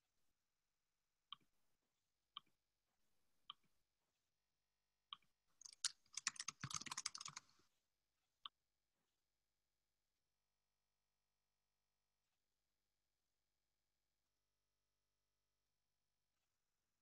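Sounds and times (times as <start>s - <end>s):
computer keyboard typing: 5.6s - 7.5s.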